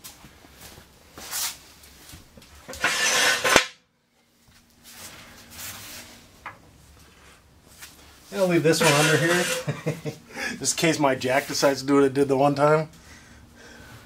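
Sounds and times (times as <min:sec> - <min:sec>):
scraping and rustling handling: 0:04.4 - 0:09.9.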